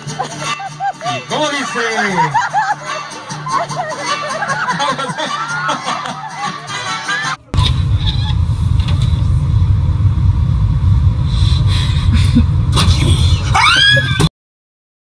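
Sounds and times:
car engine idling: 0:07.4 - 0:13.6.

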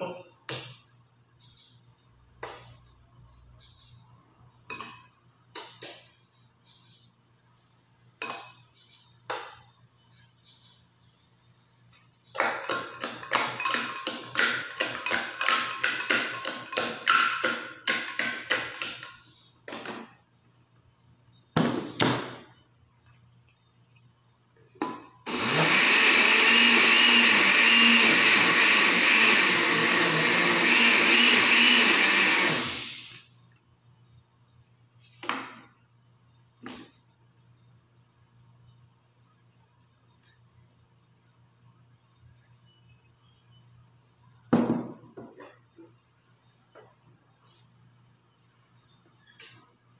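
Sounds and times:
electric blender running: 0:25.3 - 0:33.2.

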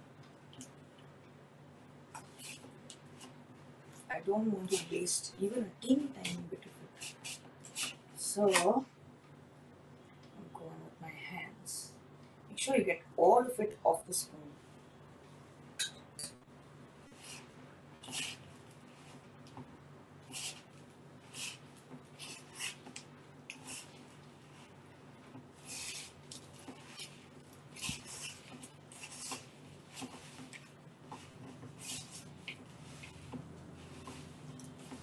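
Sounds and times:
low steady hum: 0:00.0 - 0:35.0
hands squishing cookie dough: 0:17.1 - 0:19.6, 0:20.2 - 0:35.0.

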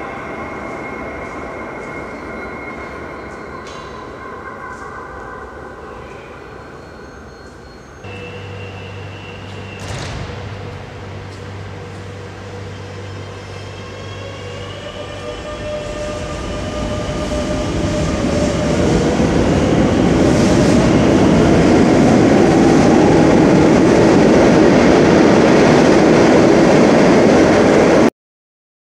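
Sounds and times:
train rushing and rumbling: 0:07.6 - 0:28.1.

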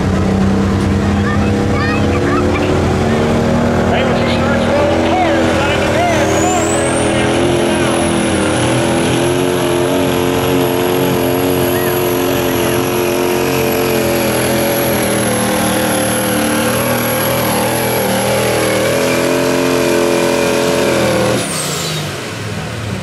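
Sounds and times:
diesel engine at full throttle: 0:00.0 - 0:23.0
high turbo whistle: 0:05.4 - 0:08.9.

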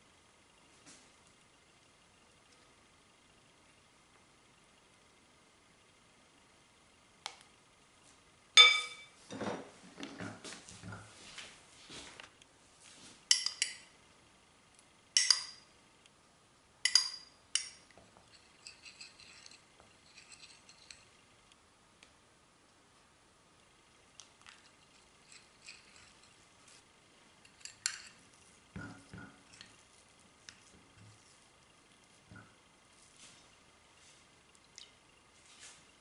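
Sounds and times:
metal spoon clinking ceramic bowl: 0:08.6 - 0:09.2, 0:13.3 - 0:13.9, 0:15.2 - 0:15.6, 0:16.9 - 0:21.1, 0:27.4 - 0:28.2
spoon scraping while stirring: 0:18.2 - 0:21.2, 0:24.4 - 0:26.8, 0:27.4 - 0:30.7.

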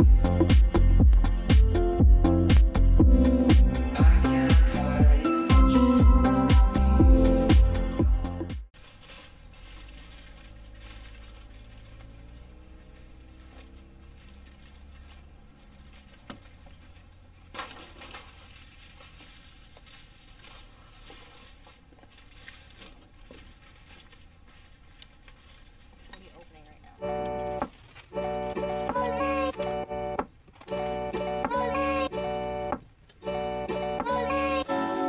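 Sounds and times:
aluminium foil crinkling: 0:08.7 - 0:29.8, 0:34.5 - 0:35.0.

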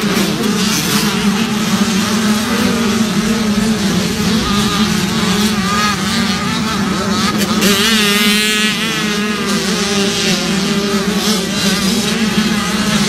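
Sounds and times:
motorbike engines droning: 0:00.0 - 0:13.0.

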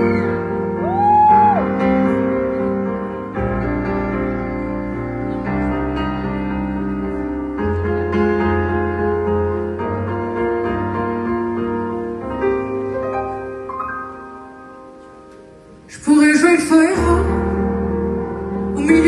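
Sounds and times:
grand piano chords: 0:00.0 - 0:19.0.

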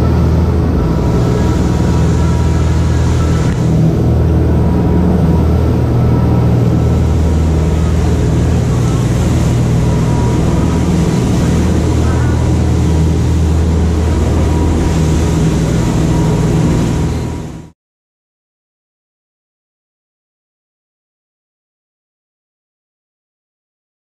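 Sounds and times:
wake water rushing: 0:00.0 - 0:17.7
boat engines droning: 0:00.0 - 0:17.8
wind: 0:00.0 - 0:17.8.

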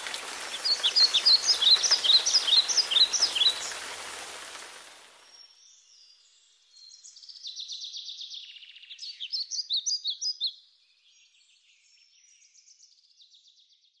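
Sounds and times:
songbirds trilling: 0:00.0 - 0:04.6
sharp bird chirps: 0:00.5 - 0:03.8.

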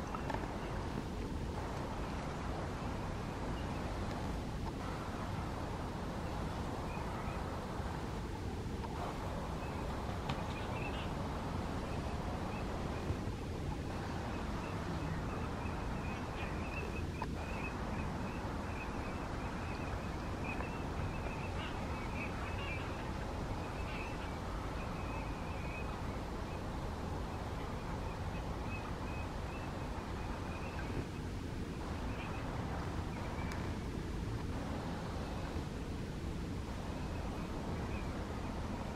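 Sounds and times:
steady low rumble: 0:00.0 - 0:38.9
flock of birds calling: 0:08.8 - 0:13.1, 0:13.9 - 0:33.8.

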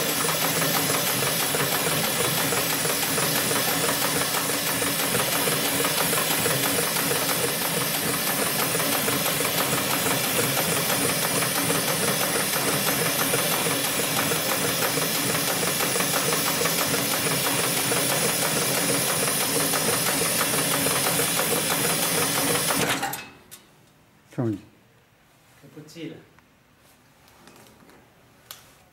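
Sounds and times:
sewing machine stitching: 0:00.0 - 0:23.2.

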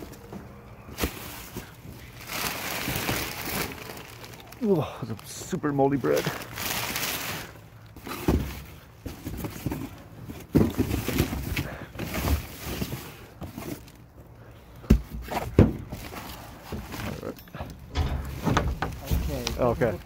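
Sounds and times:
plastic and cardboard rustling: 0:00.0 - 0:14.2, 0:14.9 - 0:20.0
thumps in a dumpster: 0:14.9 - 0:16.0, 0:17.6 - 0:19.6.

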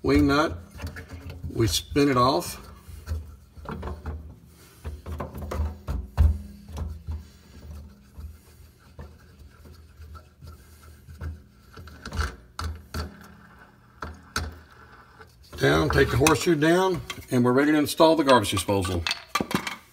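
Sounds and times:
metal parts clicking and knocking: 0:15.6 - 0:17.4, 0:18.1 - 0:19.9.

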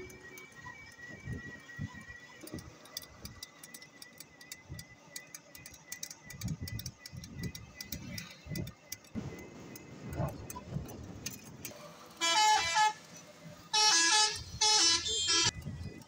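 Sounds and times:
rickshaw clicking and rattling: 0:00.0 - 0:16.0
wind on microphone: 0:06.3 - 0:11.7, 0:15.5 - 0:16.0.

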